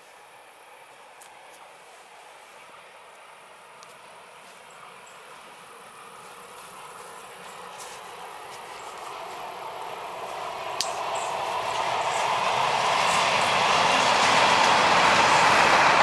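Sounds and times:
diesel locomotive engine: 0.0 - 16.0
train wheels rolling: 3.9 - 16.0.

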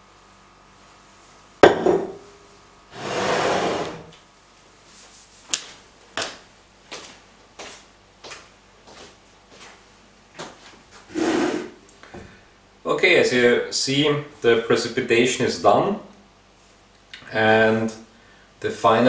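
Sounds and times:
glass beaker knocking on bench: 1.6 - 2.2.

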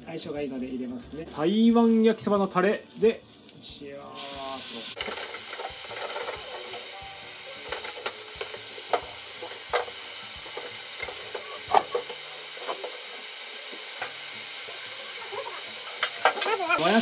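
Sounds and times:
noodles sizzling in a frying pan: 3.8 - 17.0.

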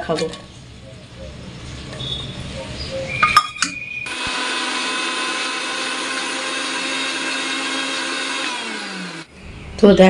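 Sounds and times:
mixer grinder running: 4.1 - 9.4.

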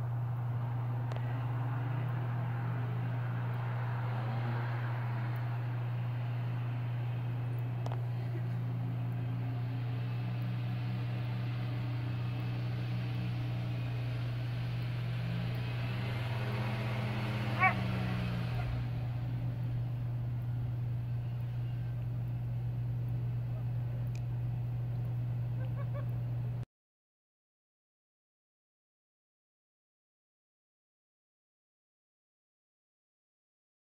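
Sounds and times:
truck engine revving: 0.0 - 26.6
dog barking: 17.4 - 18.8.

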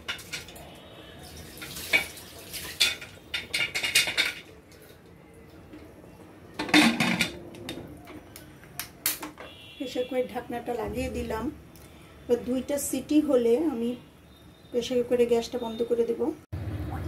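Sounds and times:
pot lid clanking and scraping: 6.6 - 7.4.

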